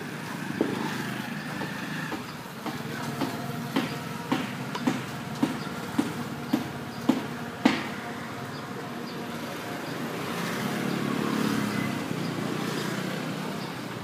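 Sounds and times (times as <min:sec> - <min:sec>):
motor vehicle passing: 0:00.0 - 0:14.0.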